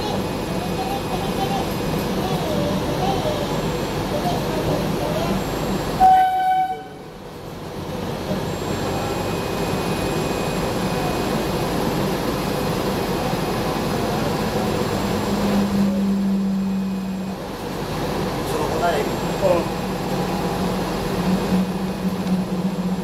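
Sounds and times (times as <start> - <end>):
railbus running noise: 0.0 - 23.0
short tone: 5.5 - 7.0
low hum: 19.1 - 23.0.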